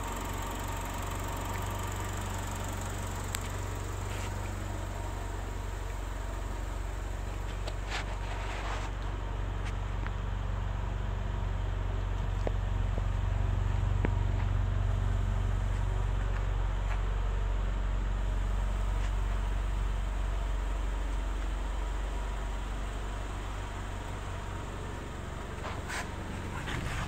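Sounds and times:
car engine idling: 0:00.0 - 0:27.0.

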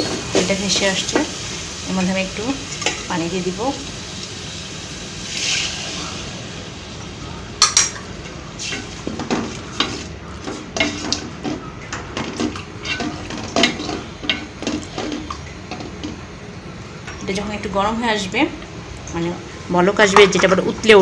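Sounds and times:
water hissing into hot pot: 0:00.0 - 0:07.4, 0:08.0 - 0:11.4
spatula scraping metal pot: 0:08.6 - 0:15.4.

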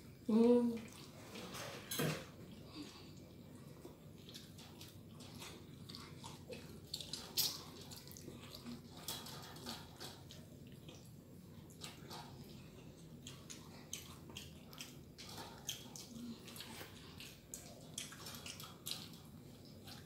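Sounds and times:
wet chewing and mouth clicks: 0:02.4 - 0:20.0.

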